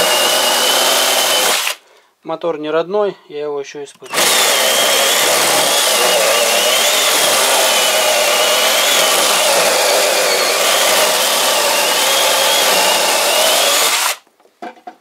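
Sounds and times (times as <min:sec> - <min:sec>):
mini chainsaw motor whining: 0:04.0 - 0:14.2.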